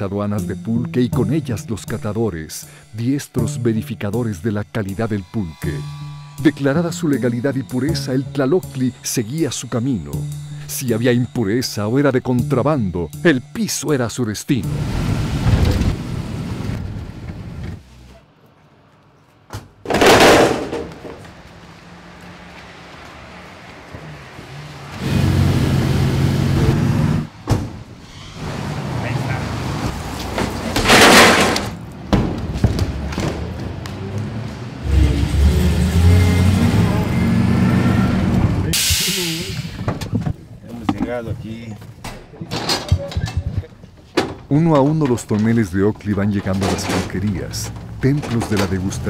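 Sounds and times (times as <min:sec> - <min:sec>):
indistinct voices: 0:00.0 - 0:14.9, 0:34.0 - 0:43.8, 0:44.4 - 0:49.0
vehicle engine rumbling: 0:14.6 - 0:49.0.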